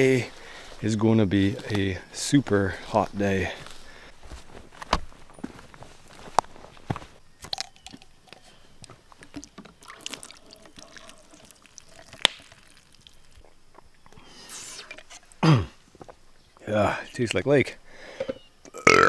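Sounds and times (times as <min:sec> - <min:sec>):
water sucked through straw: 0:09.8 - 0:12.8, 0:14.3 - 0:15.2.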